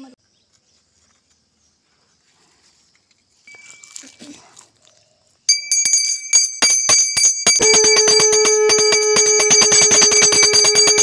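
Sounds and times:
hand bell rung rapidly: 5.5 - 11.0
conch shell blown: 7.5 - 11.0.

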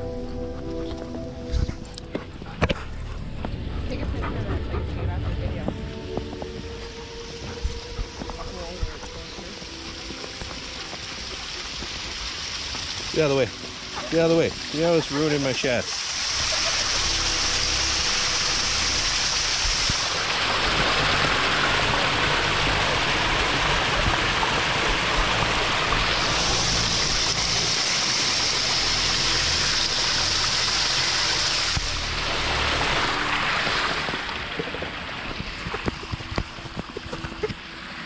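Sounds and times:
creek splashing over rocks: 5.8 - 38.0.

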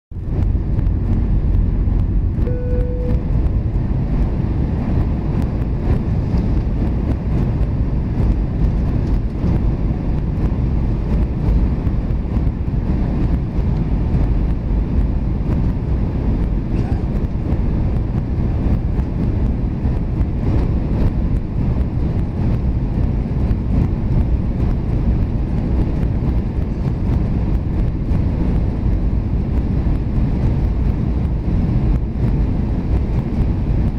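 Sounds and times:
aircraft cabin roar: 0.1 - 33.9
short steady tone: 2.4 - 3.7.

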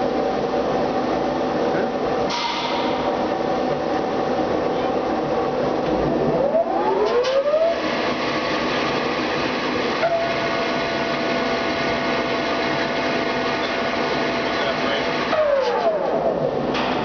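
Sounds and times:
rising whine: 5.2 - 16.6.

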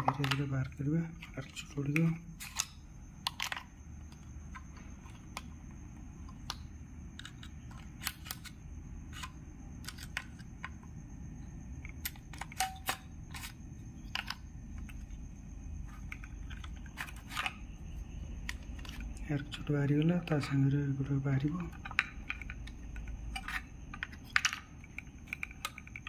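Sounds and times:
low steady hum: 0.0 - 26.0
plastic clicks and scrapes: 15.8 - 17.6.

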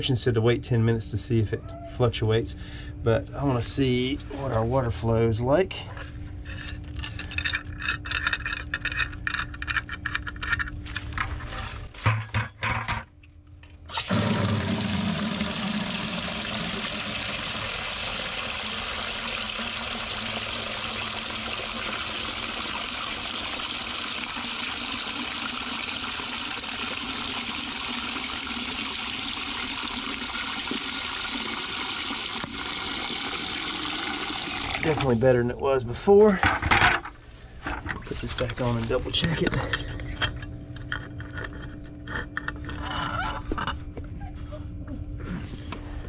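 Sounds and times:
water pouring into a plastic bucket: 13.9 - 35.2.

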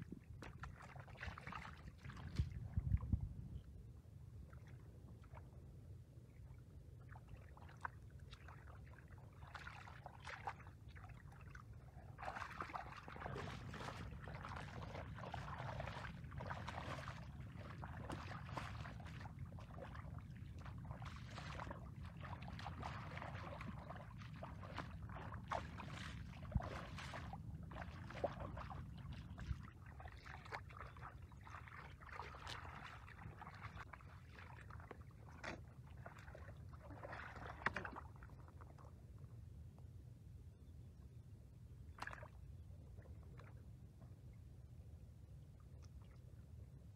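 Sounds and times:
feet splashing in muddy water: 0.2 - 3.2, 7.0 - 38.9, 41.9 - 42.4
steady low rumble: 2.2 - 6.8, 11.7 - 29.9.

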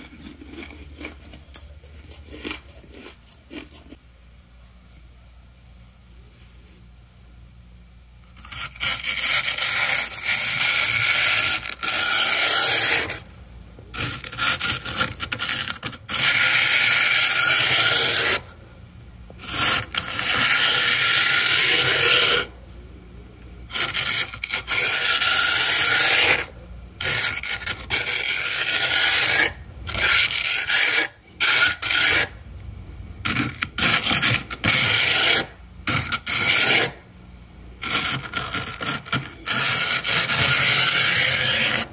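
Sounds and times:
plastic scraper scraping frost: 8.3 - 13.2, 13.9 - 18.5, 19.4 - 22.6, 23.7 - 32.4, 33.2 - 37.0, 37.8 - 41.9.

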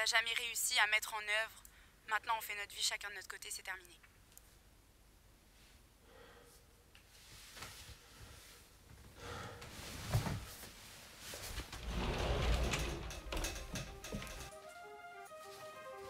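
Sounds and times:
rustling: 9.8 - 14.5.

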